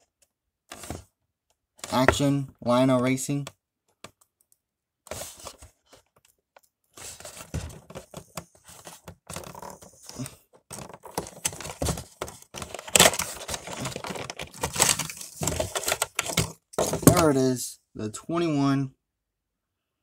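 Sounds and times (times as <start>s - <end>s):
cardboard and plastic packaging scraping: 0.7s - 1.1s, 5.1s - 6.1s, 7.0s - 17.3s.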